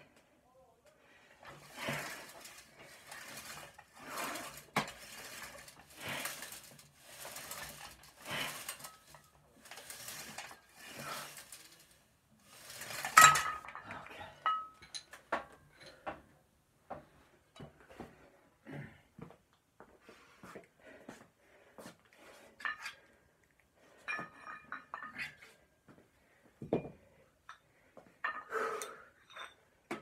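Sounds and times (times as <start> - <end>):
heavy rhythmic breathing: 1.0 - 9.1, 25.3 - 29.2.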